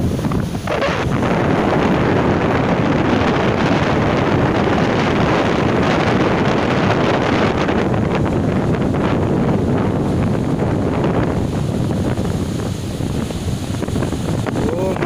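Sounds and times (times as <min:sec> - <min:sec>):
surf breaking on beach: 0:00.0 - 0:15.0
wind buffeting microphone: 0:00.0 - 0:15.0.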